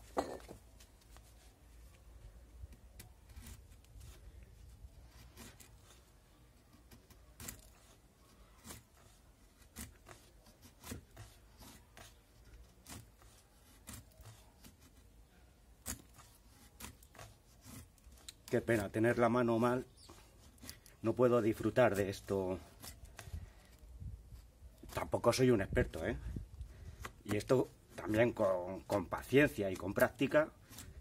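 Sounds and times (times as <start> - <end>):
knife blade shaving wood: 2.6 - 31.0.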